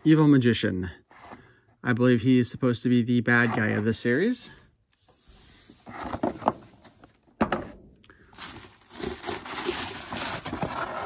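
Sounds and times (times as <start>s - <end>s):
packaging rustling and scraping: 8.3s - 11.0s.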